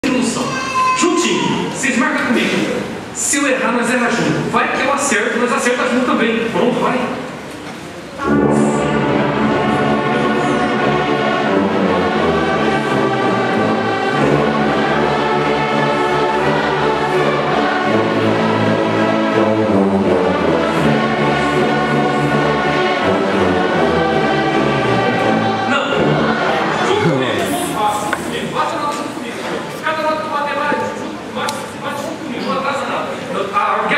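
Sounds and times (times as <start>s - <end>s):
orchestra playing a hymn: 8.2s - 30.3s.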